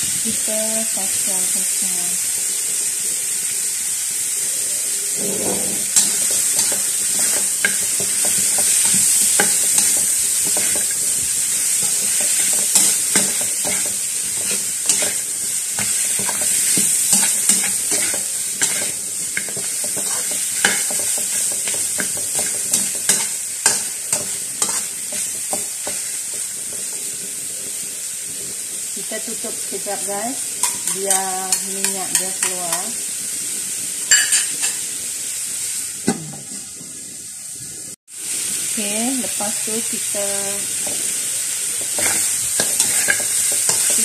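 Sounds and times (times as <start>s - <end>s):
meat sizzling in oil: 0.0s - 44.0s
spatula scraping a metal wok: 5.1s - 27.8s, 41.8s - 44.0s.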